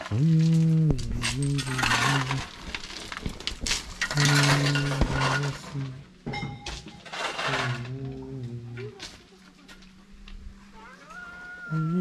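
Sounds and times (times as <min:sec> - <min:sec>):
person humming a tune: 0:00.0 - 0:02.5, 0:07.5 - 0:09.2, 0:11.7 - 0:12.0
metallic clinks and knocks: 0:01.0 - 0:08.0.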